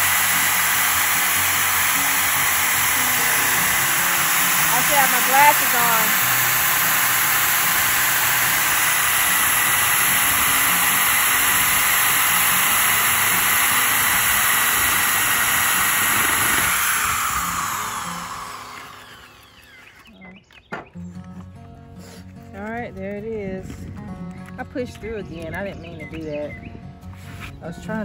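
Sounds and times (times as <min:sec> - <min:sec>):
electric drill boring into wood: 0:00.0 - 0:20.2.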